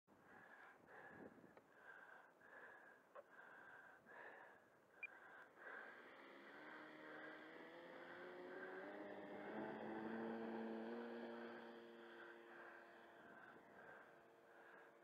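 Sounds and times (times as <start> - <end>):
motor hum rising in pitch: 5.6 - 14.8.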